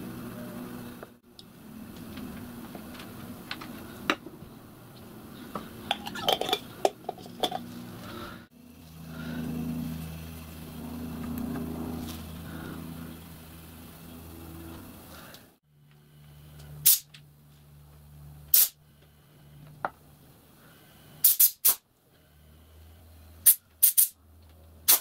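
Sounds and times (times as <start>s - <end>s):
low steady hum: 0.0s - 21.2s
metal parts clinking on glass jar: 5.9s - 7.6s.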